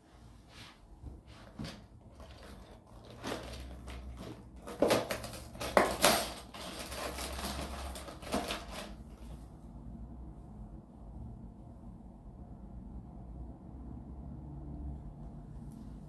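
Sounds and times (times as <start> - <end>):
cardboard scraping and rustling: 1.1 - 9.5.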